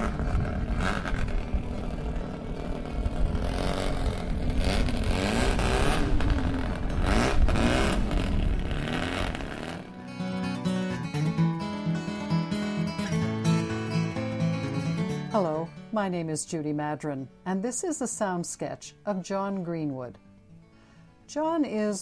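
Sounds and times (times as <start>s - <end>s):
racing car engines revving: 0.0s - 10.0s.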